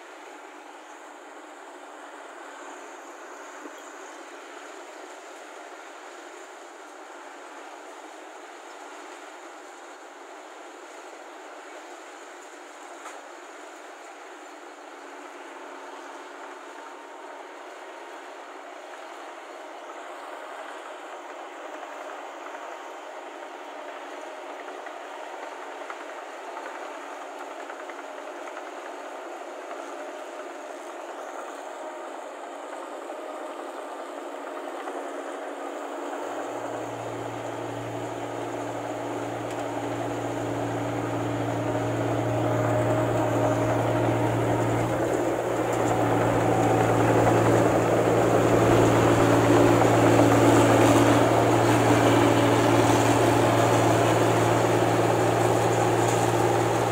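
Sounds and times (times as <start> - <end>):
combine harvester clatter and whirr: 0.1 - 56.9
low engine hum: 30.2 - 56.9.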